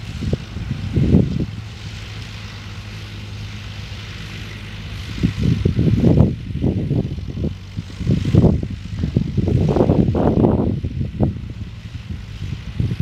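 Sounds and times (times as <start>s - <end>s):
low wind buffeting: 0.0s - 13.0s
tractor engine running: 0.0s - 13.0s.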